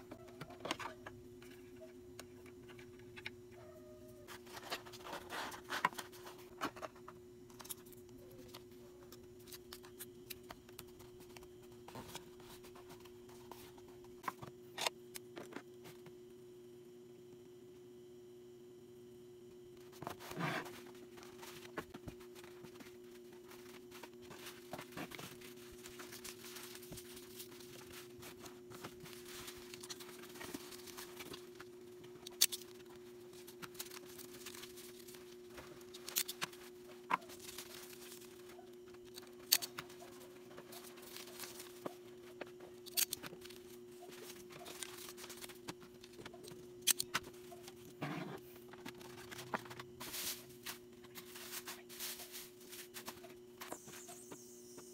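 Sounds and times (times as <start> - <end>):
steady low hum: 0.0 - 54.9
packing materials rustling: 20.0 - 47.9.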